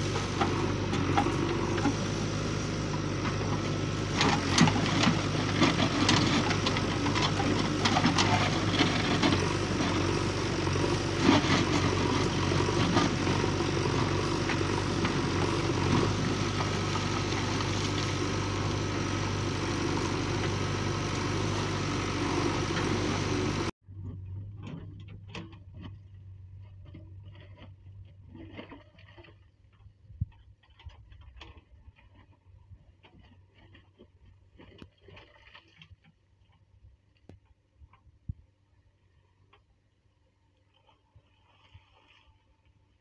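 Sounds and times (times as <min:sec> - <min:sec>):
diesel engine running: 0:00.0 - 0:27.6.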